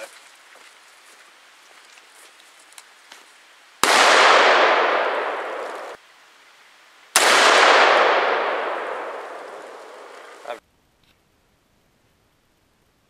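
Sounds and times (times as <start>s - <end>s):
pistol shots echoing: 3.8s - 6.0s, 7.2s - 10.4s.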